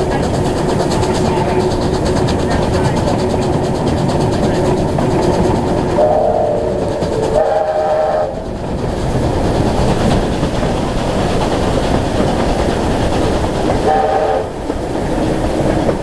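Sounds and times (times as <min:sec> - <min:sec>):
train wheel and rail rumble: 0:00.0 - 0:16.0
steam locomotive whistle blasts: 0:06.0 - 0:08.4, 0:13.8 - 0:14.6.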